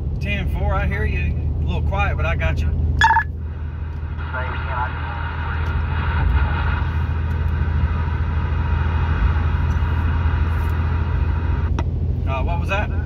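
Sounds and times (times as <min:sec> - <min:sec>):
road and engine rumble: 0:00.0 - 0:13.0.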